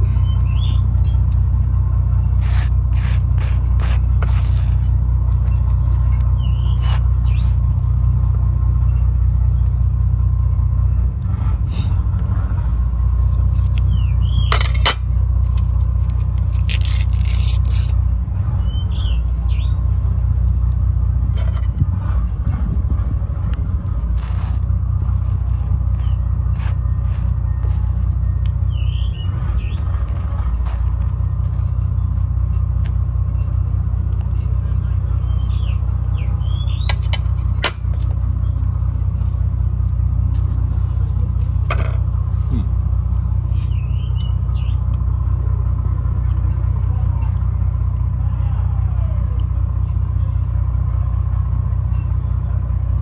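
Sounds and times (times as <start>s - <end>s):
bird chirping: 0.0s - 1.4s, 6.3s - 7.6s, 13.8s - 14.8s, 18.6s - 19.8s, 27.5s - 29.9s, 34.8s - 37.1s, 43.6s - 44.8s
steady low rumble: 0.0s - 53.0s.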